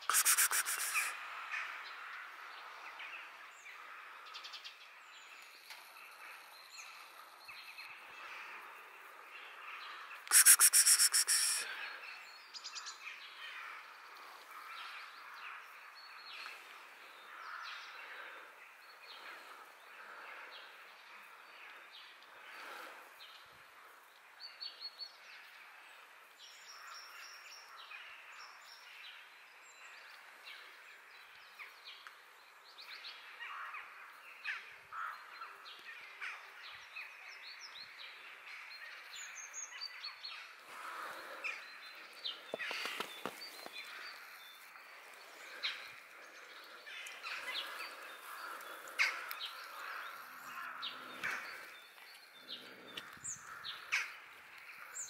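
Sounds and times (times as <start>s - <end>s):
birds chirping: 0.0s - 1.2s, 38.9s - 55.0s
steady outdoor hiss: 0.0s - 55.0s.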